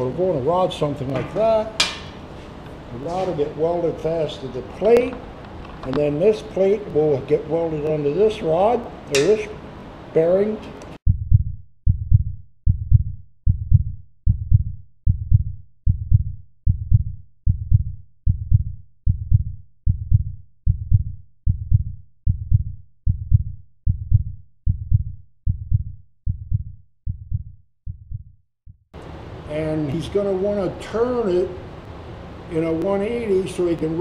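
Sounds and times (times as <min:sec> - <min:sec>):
deep thumping beat: 0:11.0 - 0:28.9.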